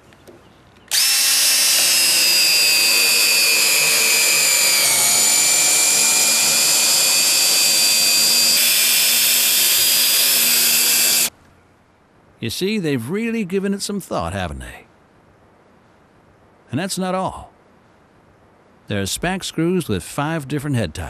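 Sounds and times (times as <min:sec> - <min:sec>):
cordless drill whining: 0:00.9 - 0:11.3.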